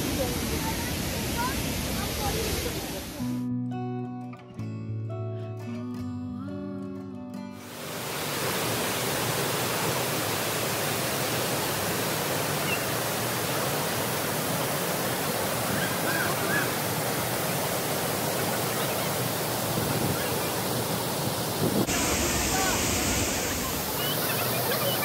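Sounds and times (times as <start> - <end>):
waterfall pouring into pool: 0.0 - 3.2, 7.6 - 25.0.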